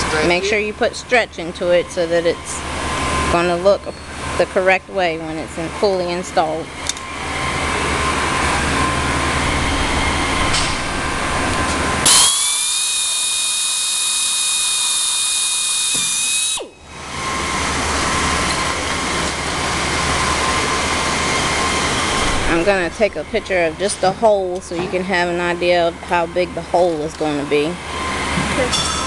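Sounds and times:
steady background hum: 0:00.0 - 0:29.0
handheld drill whining: 0:12.0 - 0:22.3.

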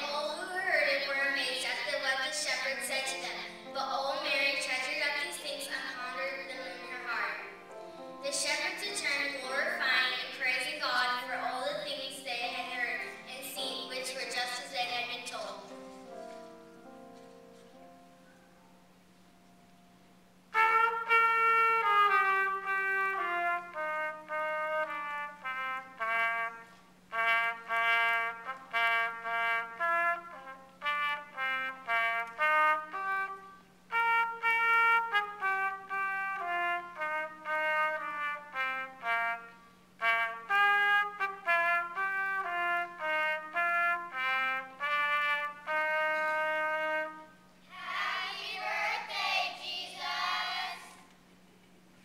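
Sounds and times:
solo trumpet melody: 0:00.0 - 0:18.6, 0:20.4 - 0:47.7
many voices: 0:47.7 - 0:51.0.

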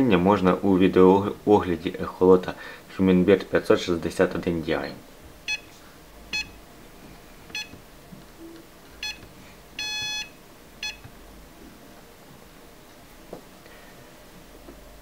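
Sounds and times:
electronic device beeping: 0:05.4 - 0:06.6, 0:07.5 - 0:07.8, 0:08.4 - 0:11.1.

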